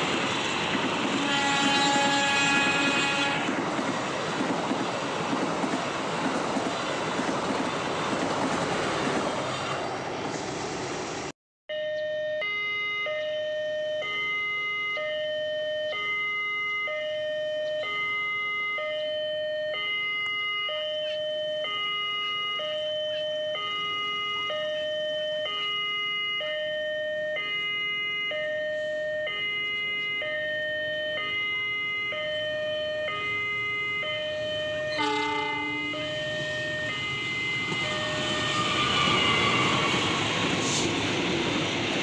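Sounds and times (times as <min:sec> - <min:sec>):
level crossing two-note alarm: 0:11.7 - 0:38.8.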